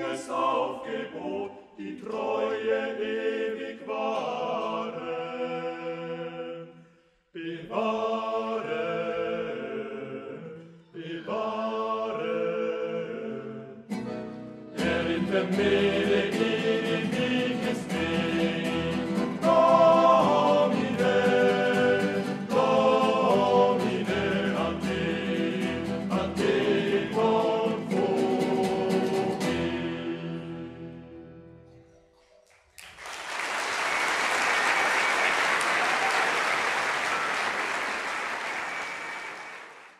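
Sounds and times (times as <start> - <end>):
male vocal group singing: 0.0 - 6.8, 7.4 - 13.9, 14.8 - 31.2
strummed guitars: 13.9 - 30.5
accordion: 13.9 - 30.9
audience applause: 32.5 - 39.9.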